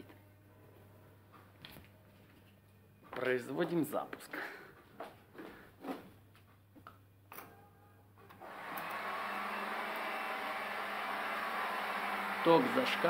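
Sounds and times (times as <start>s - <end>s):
heat guns blowing hum: 8.4s - 13.0s.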